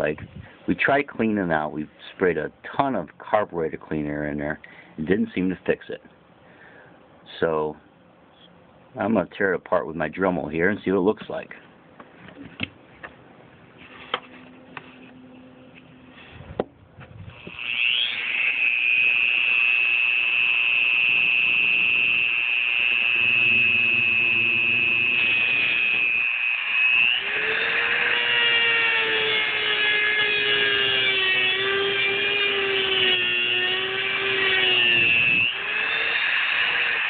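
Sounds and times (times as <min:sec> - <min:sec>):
cutoff wheel grinding metal: 0:17.3 - 0:37.0
rotary tool whining: 0:17.3 - 0:37.0.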